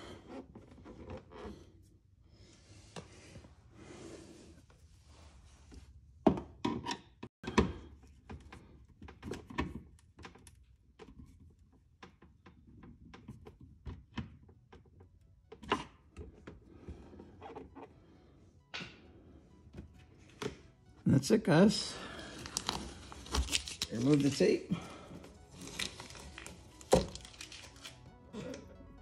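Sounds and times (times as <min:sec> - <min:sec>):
plastic parts being handled: 0:22.2 - 0:28.6.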